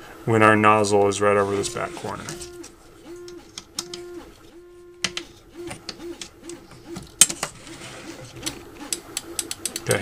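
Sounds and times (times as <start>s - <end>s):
bed sliding rattle on rails: 5.6s - 8.6s.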